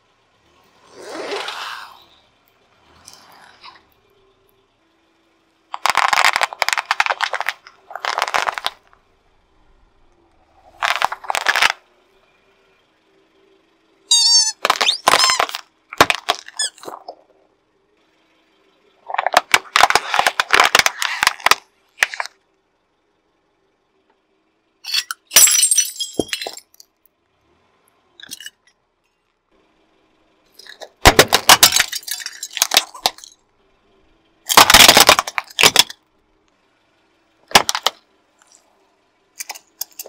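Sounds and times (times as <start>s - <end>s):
car tyre crushing things on asphalt: 0.4s - 4.0s, 5.7s - 9.2s, 10.0s - 11.9s, 14.1s - 17.4s, 19.0s - 22.4s, 30.5s - 33.5s, 34.3s - 36.1s, 37.4s - 38.7s
bubble wrap popping: 5.8s - 8.8s, 10.7s - 11.8s, 14.4s - 17.0s
plastic crackling: 5.8s - 9.0s, 10.6s - 11.8s, 14.5s - 17.2s, 19.1s - 22.3s, 34.5s - 35.9s
squeaky rubber toys squealing: 14.1s - 15.6s, 16.3s - 17.0s.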